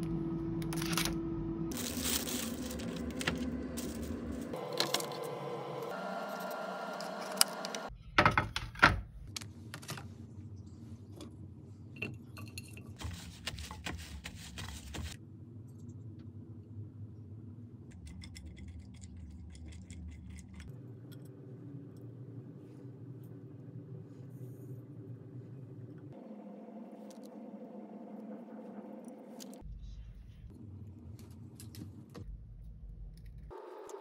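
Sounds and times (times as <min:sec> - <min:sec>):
rustling of vegetables: 0:01.7 - 0:05.2.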